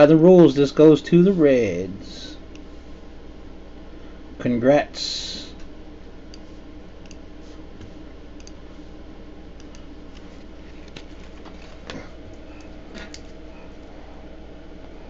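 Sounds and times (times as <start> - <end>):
low hum: 0.0 - 15.0
faint mouse clicks: 6.3 - 7.2, 8.4 - 8.6, 9.6 - 11.0.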